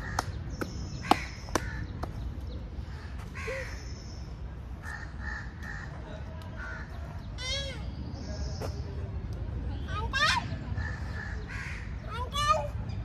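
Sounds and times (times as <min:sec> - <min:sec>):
crows cawing: 0:02.9 - 0:03.8, 0:04.8 - 0:06.0, 0:10.8 - 0:12.0.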